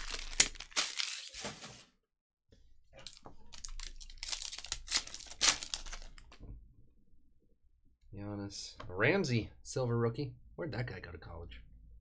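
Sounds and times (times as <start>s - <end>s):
foil wrapper crinkling and tearing: 0.0s - 1.8s, 3.0s - 6.4s.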